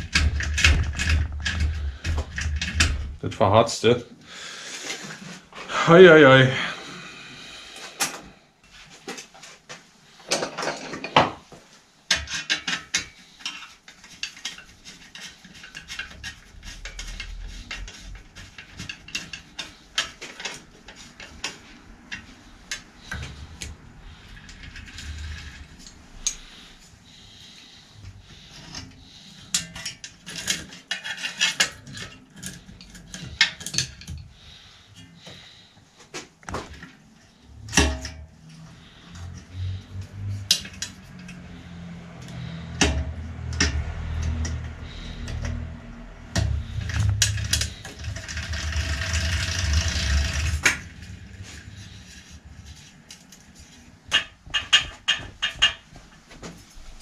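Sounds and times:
tools and metal parts clinking: 0:00.0 - 0:03.2, 0:10.2 - 0:11.4, 0:12.1 - 0:26.7, 0:28.5 - 0:34.3.

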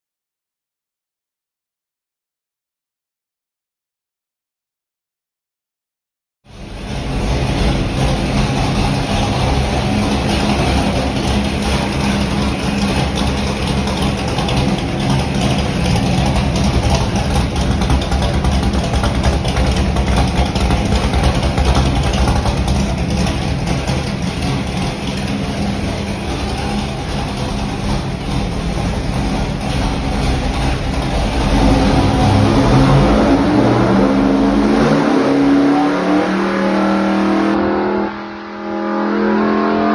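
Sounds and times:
large engine running on dynamometer: 0:06.5 - 0:39.0.

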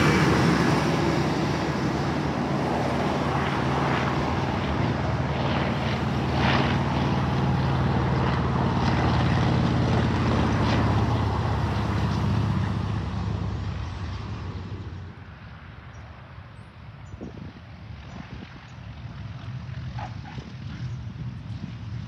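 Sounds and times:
propeller plane engine droning: 0:00.0 - 0:22.0.

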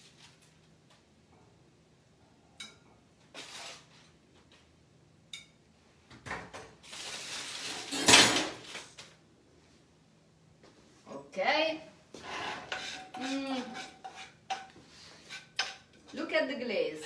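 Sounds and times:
cookware and utensils clattering: 0:07.5 - 0:08.8, 0:12.4 - 0:16.3.

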